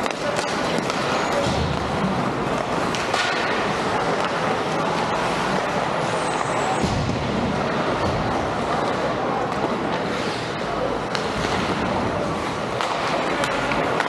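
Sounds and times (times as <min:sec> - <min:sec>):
ice hockey game rushing noise: 0:00.0 - 0:14.0.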